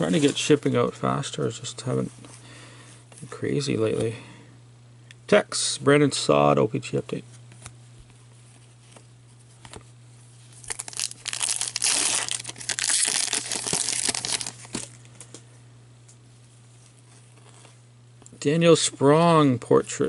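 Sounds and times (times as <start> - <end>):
steady low hum: 0.0 - 20.0
plastic wrapper crinkling and tearing: 10.5 - 15.0.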